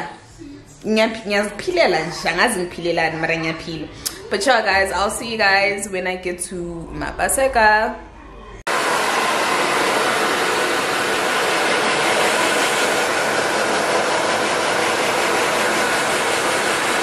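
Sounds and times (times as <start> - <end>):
hair dryer blowing: 8.7 - 17.0.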